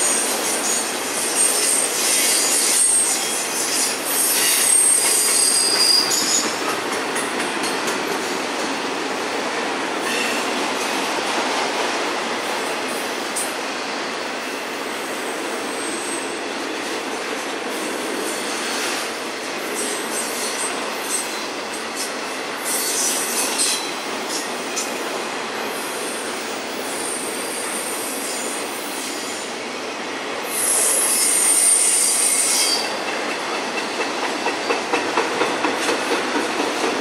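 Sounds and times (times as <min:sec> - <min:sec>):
steel wheels rolling on rail: 0:00.0 - 0:37.0
high-pitched wheel squeal: 0:00.6 - 0:06.6, 0:30.6 - 0:32.9.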